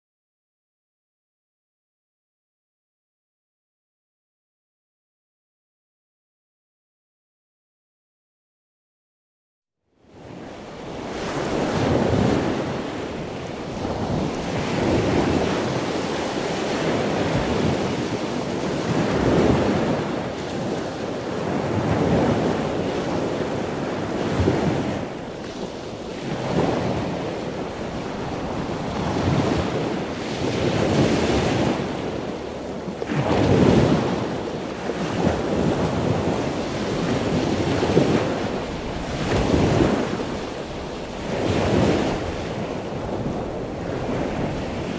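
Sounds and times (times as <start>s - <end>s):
wind: 9.8s - 44.9s
sea waves washing on shore: 10.1s - 44.9s.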